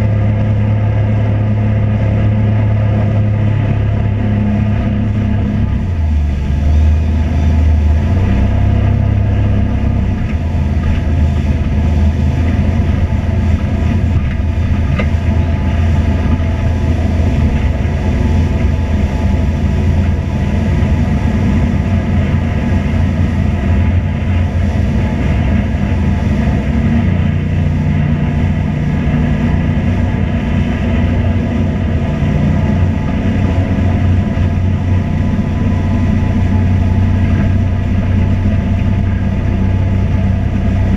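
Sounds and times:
loud low engine drone: 0:00.0 - 0:40.9.

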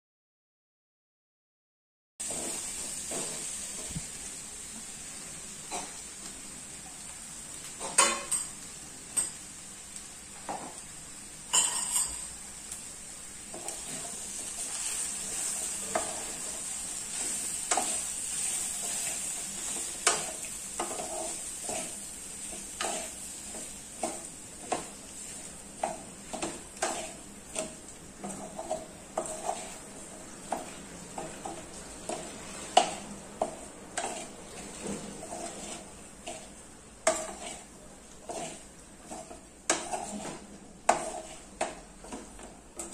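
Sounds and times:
spatula knocking and scraping pan: 0:02.2 - 0:04.1, 0:07.8 - 0:08.5, 0:10.4 - 0:10.8, 0:11.5 - 0:12.3, 0:13.5 - 0:42.9
food sizzling in oil: 0:02.2 - 0:42.9.

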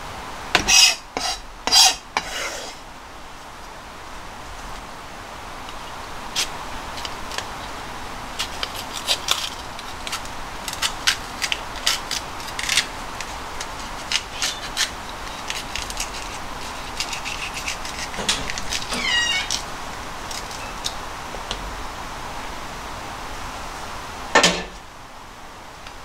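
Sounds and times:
knife cutting bell pepper: 0:00.6 - 0:02.7, 0:08.4 - 0:19.6
short squeak: 0:18.3 - 0:19.6.

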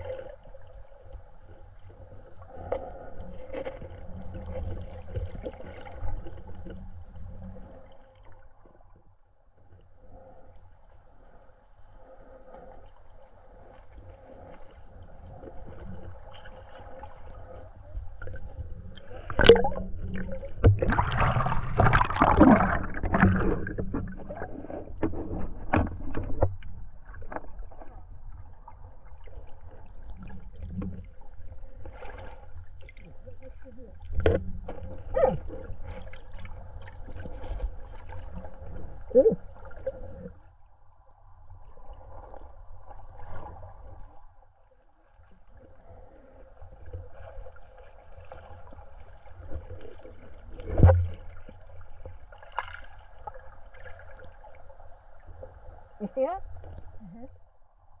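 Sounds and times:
gurgling water underwater: 0:00.0 - 0:58.0
underwater knocks: 0:19.3 - 0:26.6, 0:50.7 - 0:51.3.

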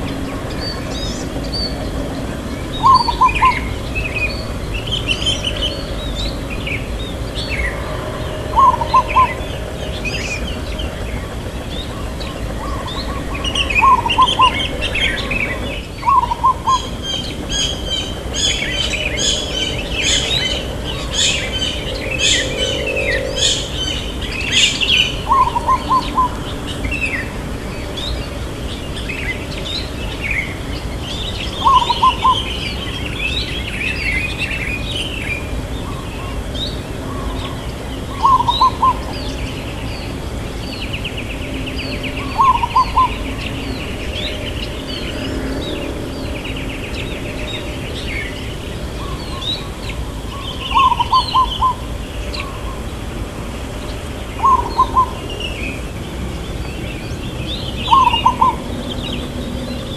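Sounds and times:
small birds chirping: 0:00.0 - 0:53.0, 0:53.6 - 0:59.9
dove cooing: 0:02.8 - 0:03.8, 0:07.5 - 0:10.4, 0:12.3 - 0:26.9, 0:31.6 - 0:32.6, 0:38.1 - 0:39.2, 0:42.2 - 0:43.2, 0:50.7 - 0:52.6, 0:54.4 - 0:55.2, 0:57.9 - 0:58.7.

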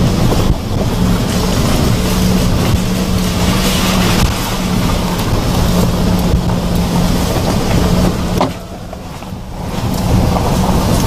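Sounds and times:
truck engine drone: 0:00.0 - 0:11.0.

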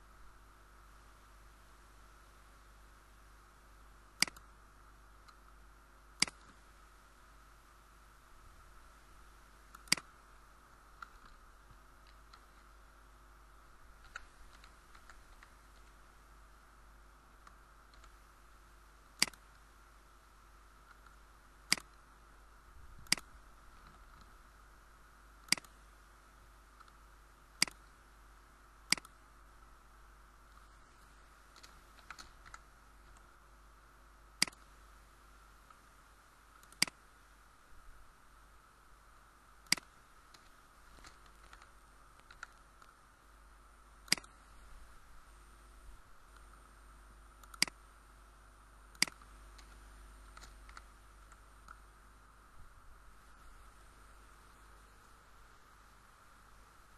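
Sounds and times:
faint steady hiss: 0:00.0 - 0:56.9
computer mouse clicks: 0:04.1 - 0:04.5, 0:06.2 - 0:06.6, 0:09.7 - 0:10.2, 0:12.0 - 0:12.7, 0:14.0 - 0:16.0, 0:17.4 - 0:18.2, 0:19.1 - 0:19.7, 0:20.8 - 0:22.0, 0:23.0 - 0:24.4, 0:25.4 - 0:25.8, 0:26.8 - 0:27.0, 0:27.6 - 0:27.9, 0:28.9 - 0:29.2, 0:30.5 - 0:33.3, 0:34.4 - 0:34.8, 0:36.5 - 0:37.0, 0:39.6 - 0:43.0, 0:44.0 - 0:44.5, 0:47.4 - 0:47.8, 0:48.9 - 0:51.8.

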